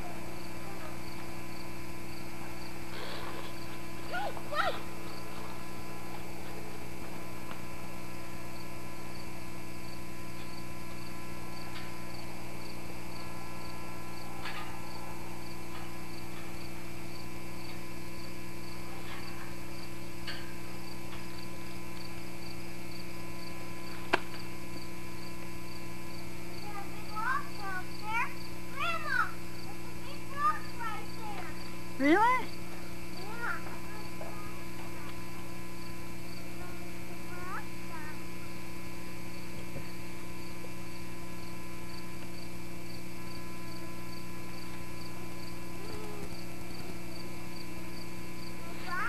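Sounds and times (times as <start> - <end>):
insect chirping: 0.0 - 6.0, 7.7 - 49.0
electrical hum: 0.0 - 49.0.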